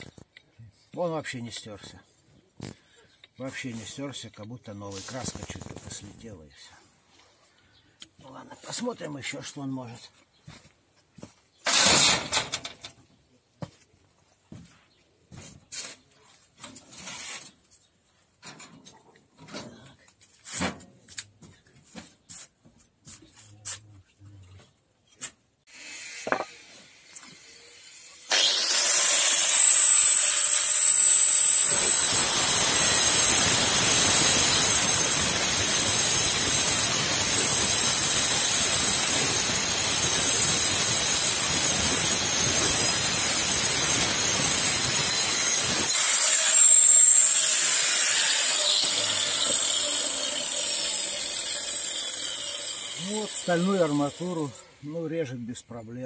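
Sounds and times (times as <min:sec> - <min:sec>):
grinder cutting steel rod: 0:11.7 - 0:12.8, 0:25.7 - 0:54.8
angle grinder whine: 0:25.8 - 0:54.8.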